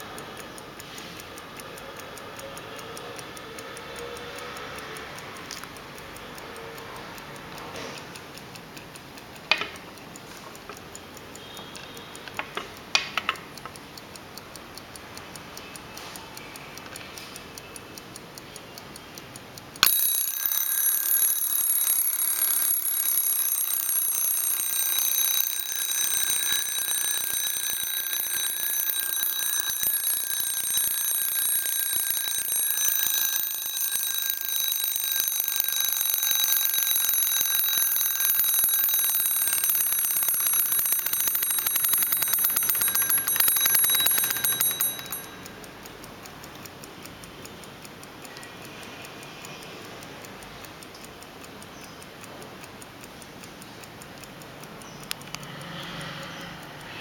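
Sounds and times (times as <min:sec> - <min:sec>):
alarm clock ticking: 0:00.0 - 0:57.0
sharp clicks: 0:00.0 - 0:57.0
high-pitched alarm ringing: 0:19.8 - 0:45.6.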